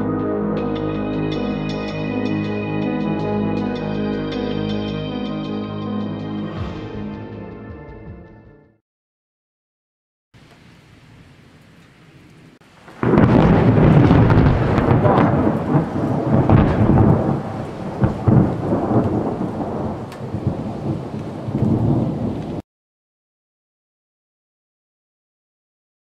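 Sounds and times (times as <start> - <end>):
rain hiss: 10.4 - 14.6
thunder clap rumbling: 12.7 - 22.6.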